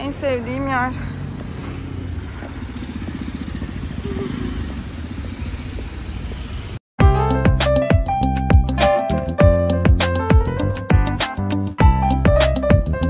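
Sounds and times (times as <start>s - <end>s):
street traffic noise: 0.0s - 6.8s
vehicle engine running close by: 0.0s - 6.8s
instrumental music: 7.0s - 13.0s.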